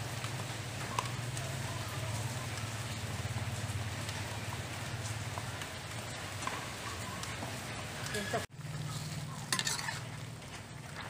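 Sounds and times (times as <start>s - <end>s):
faint sizzle: 0.0s - 11.0s
metal spatula scraping wok: 8.0s - 10.3s.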